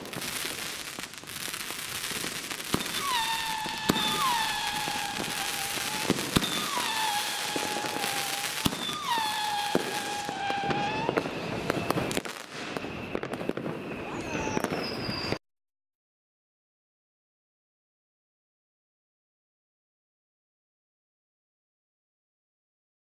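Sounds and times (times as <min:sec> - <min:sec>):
fireworks crackle: 0:00.0 - 0:15.4
whistling fireworks: 0:00.0 - 0:15.4.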